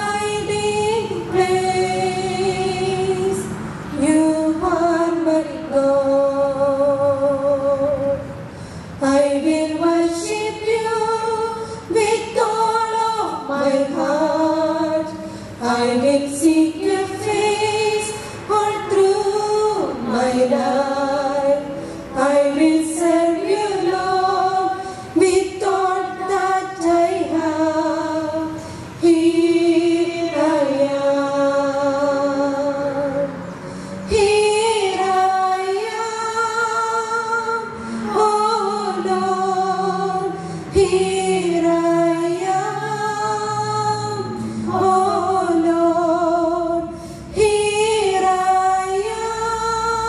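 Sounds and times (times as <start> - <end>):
women singing a hymn: 0.0 - 50.0.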